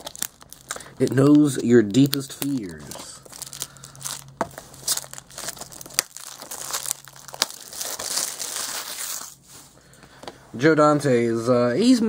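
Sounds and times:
plastic wrap snapping: 0.0 - 9.4
plastic wrap crinkling: 0.0 - 9.5.

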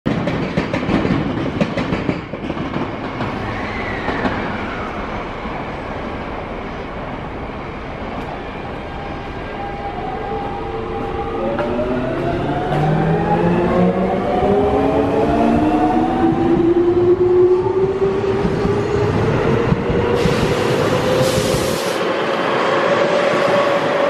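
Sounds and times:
train wheels clattering over rail joints: 0.1 - 3.4.

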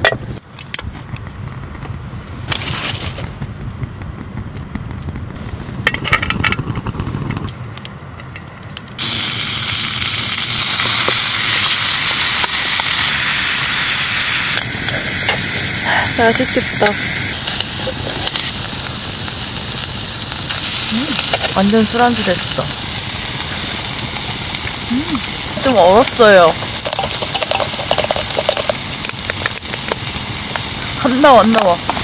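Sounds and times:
sauce sizzling in hot pan: 9.0 - 32.0.

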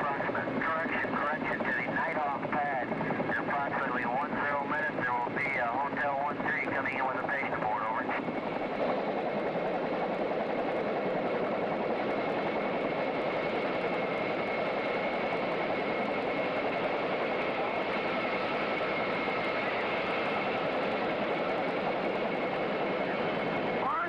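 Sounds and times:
helicopter engine and rotor drone: 0.0 - 24.0.

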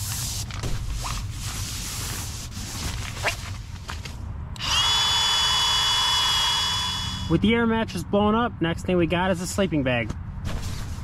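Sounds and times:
sleeping pad rustling: 0.0 - 4.1
electric air pump whining: 4.6 - 7.4.

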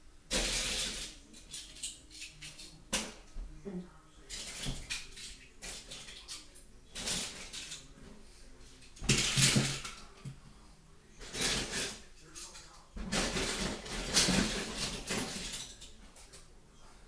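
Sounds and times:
toy cars clinking and clattering: 0.3 - 2.8, 11.2 - 16.4.

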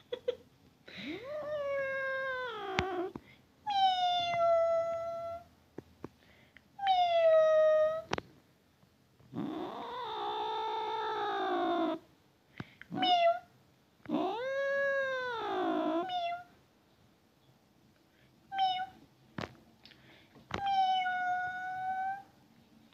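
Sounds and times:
cat meowing: 3.7 - 5.5, 12.9 - 13.5, 14.1 - 16.5, 18.5 - 19.0, 20.5 - 22.3.

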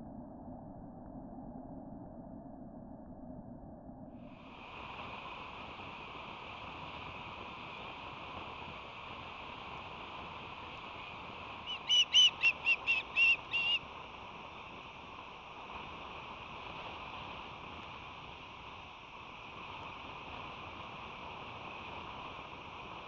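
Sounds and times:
osprey whistled chirps: 11.6 - 13.8.

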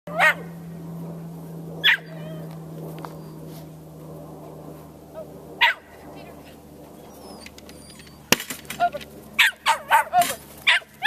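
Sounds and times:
dog barking: 0.1 - 0.5, 1.8 - 2.1, 5.6 - 5.9, 9.4 - 11.0.

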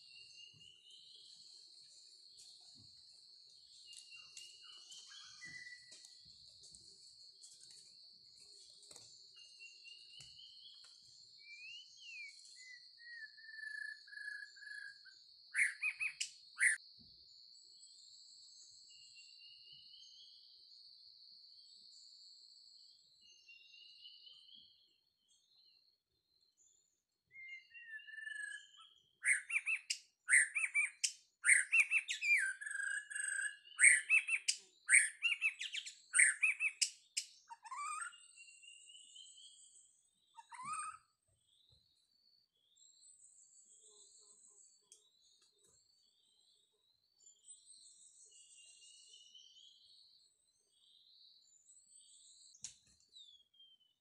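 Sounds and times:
bird whistled song: 0.0 - 6.2, 8.8 - 16.8, 26.6 - 46.6, 47.2 - 54.0
sharp repeated bird calls: 28.0 - 38.2, 40.4 - 41.1.

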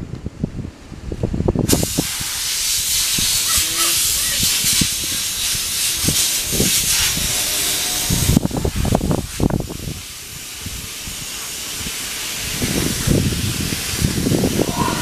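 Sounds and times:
loud steady hiss: 1.6 - 15.0.

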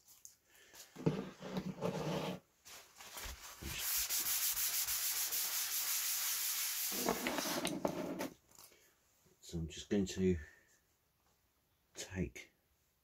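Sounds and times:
tissue rubbing on plastic mat: 1.2 - 8.3.

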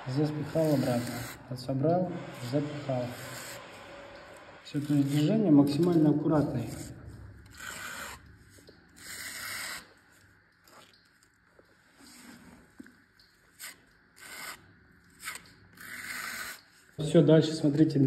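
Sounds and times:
spatula scraping grout on tiles: 0.1 - 1.4, 2.2 - 3.8, 4.7 - 11.4, 13.5 - 17.0.

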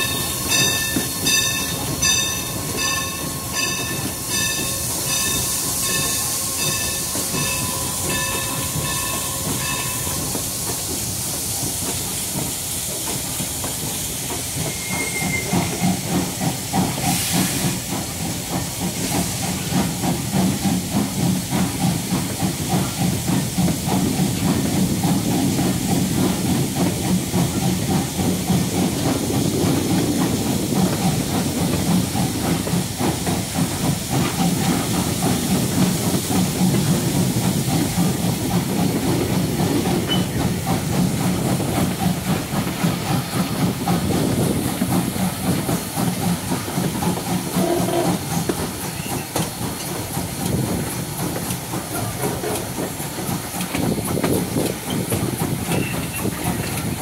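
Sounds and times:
rhythmic train chuffing: 0.0 - 57.0
steam hissing: 0.0 - 57.0.

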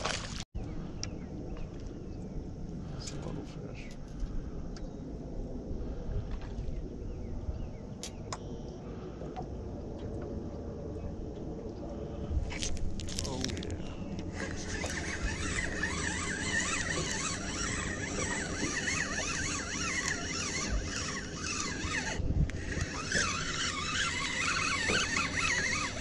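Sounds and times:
fishing reel whirring: 12.0 - 26.0.

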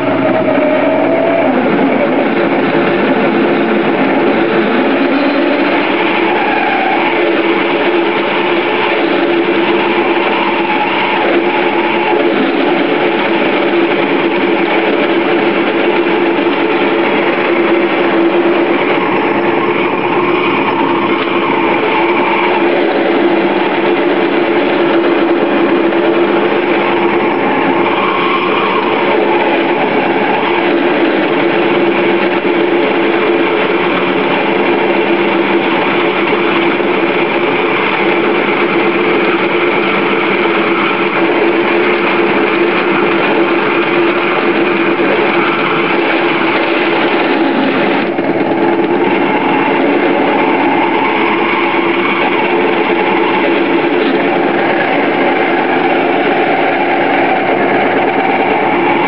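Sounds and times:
metal lathe running: 0.0 - 59.0.

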